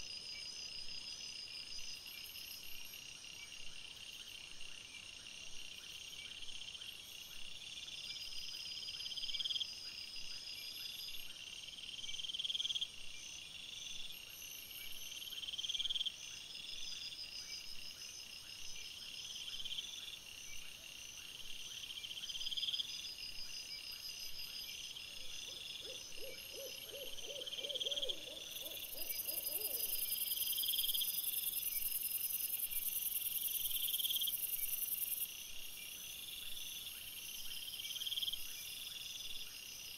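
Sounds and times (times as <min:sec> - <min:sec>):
crickets chirring: 0:22.0 - 0:39.9.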